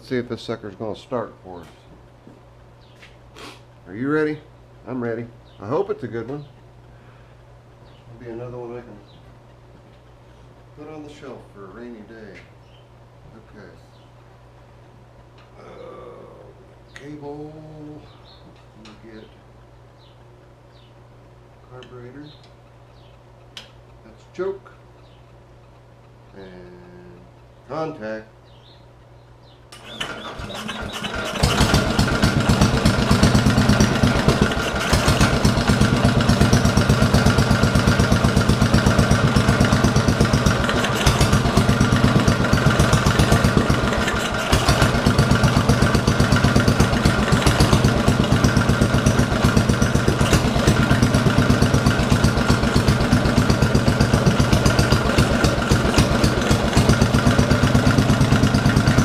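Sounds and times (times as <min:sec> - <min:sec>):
single-cylinder engine starting and running: 0:29.7 - 0:59.0.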